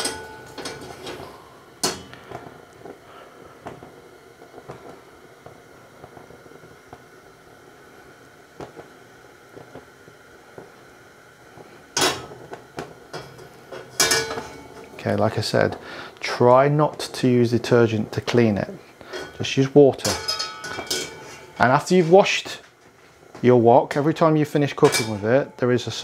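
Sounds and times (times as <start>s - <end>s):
wok clattering: 0.0s - 2.5s, 12.0s - 12.5s, 13.1s - 15.0s, 19.0s - 22.1s, 24.7s - 26.0s
wok hissing on gas burner: 0.0s - 26.0s.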